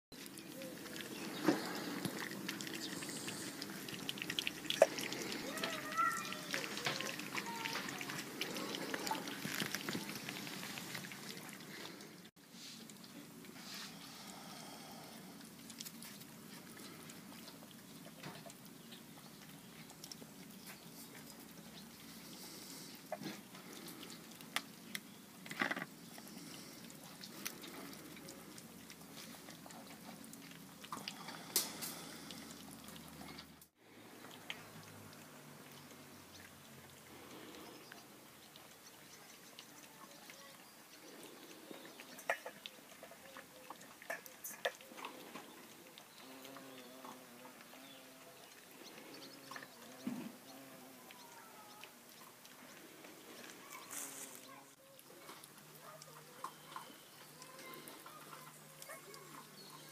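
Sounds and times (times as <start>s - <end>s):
puppies chewing and lapping: 0.1s - 59.9s
bowls clicking and scraping: 41.0s - 48.0s.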